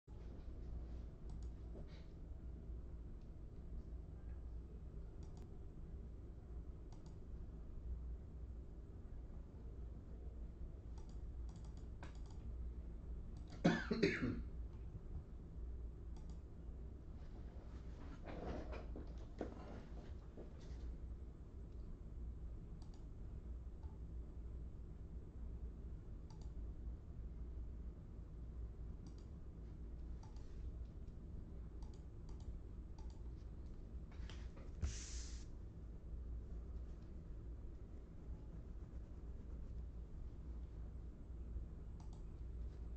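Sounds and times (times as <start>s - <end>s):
low steady hum: 0.1s - 42.9s
faint clicks: 5.2s - 5.5s, 6.9s - 7.2s, 11.0s - 12.4s, 16.1s - 16.4s, 26.3s - 26.6s, 31.8s - 34.4s, 42.0s - 42.4s
person coughing: 13.5s - 14.5s.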